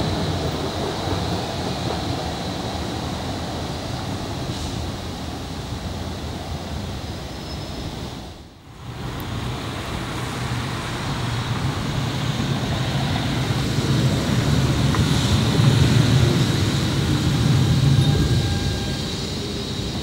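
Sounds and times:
tram running rumble: 0.0 - 20.0.

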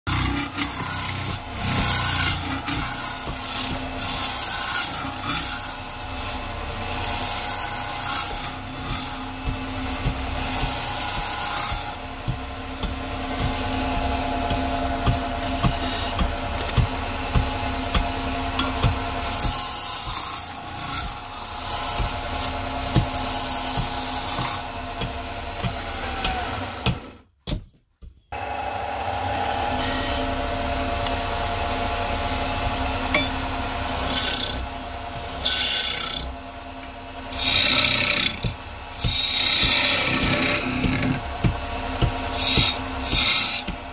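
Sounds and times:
lathe motor hum: 0.1 - 27.2, 28.4 - 43.9
turning tool scraping wood: 0.1 - 27.2, 32.2 - 43.9.

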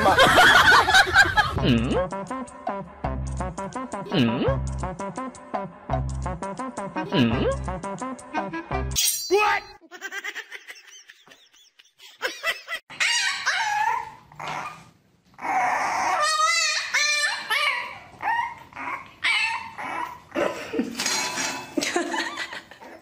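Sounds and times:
puppy barking and whimpering: 12.9 - 20.4.

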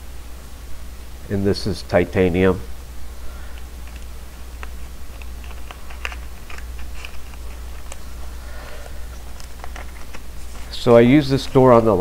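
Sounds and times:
low steady hum: 0.0 - 12.0
plastic bags crinkling: 3.8 - 10.9.

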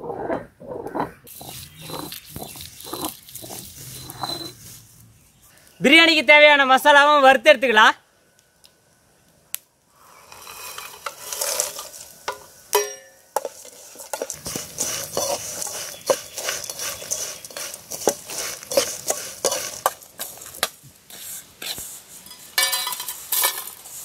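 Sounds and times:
metal spoon scraping pan: 0.4 - 4.6, 10.2 - 23.8
spices rattling into pan: 1.3 - 4.3, 10.6 - 20.8
ringing metal clang: 12.7 - 13.3.

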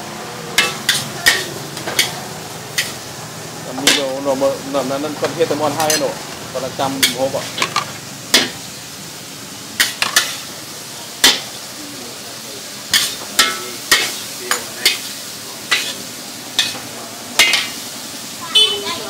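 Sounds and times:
noodles sizzling: 0.0 - 19.0
metal ladle clanking on wok: 0.6 - 3.0, 3.8 - 4.2, 5.8 - 6.2, 7.0 - 8.6, 9.8 - 10.5, 11.2 - 11.6, 12.9 - 15.1, 15.7 - 17.9.

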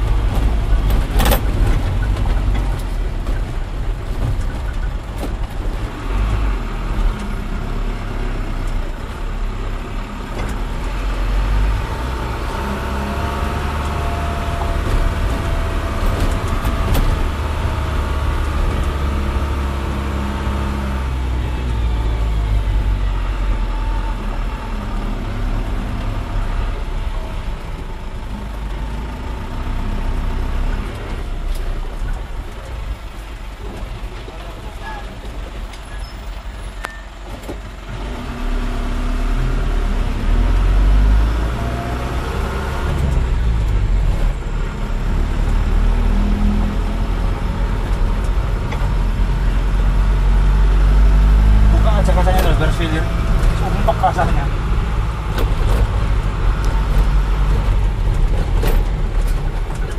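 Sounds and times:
sharp knocks from bumpy ride: 0.1 - 6.0, 13.7 - 19.4, 52.1 - 59.9
truck engine running: 40.1 - 59.9.

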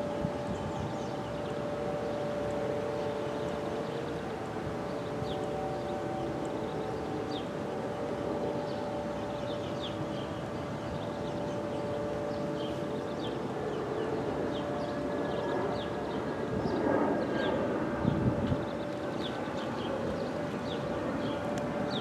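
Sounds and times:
warning sirens: 0.0 - 22.0.

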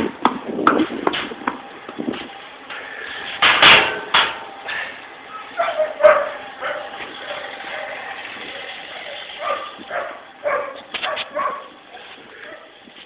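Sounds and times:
dog barking: 5.6 - 8.0, 9.4 - 11.7, 12.4 - 12.7.

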